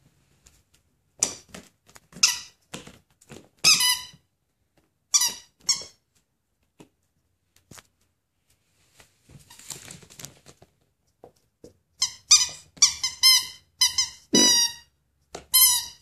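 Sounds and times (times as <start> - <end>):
squeaky toy squeaking: 2.2 - 2.6, 3.6 - 4.2, 5.1 - 6.0, 12.0 - 14.9, 15.5 - 16.0.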